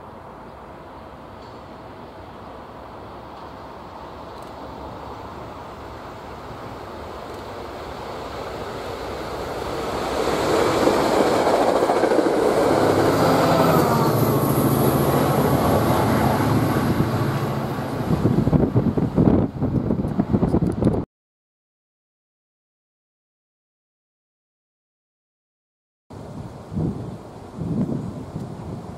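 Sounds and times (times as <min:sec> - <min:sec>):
train passing on rails: 0:00.0 - 0:20.9, 0:26.1 - 0:28.9
wind gusts on microphone: 0:08.4 - 0:21.1, 0:26.1 - 0:28.9.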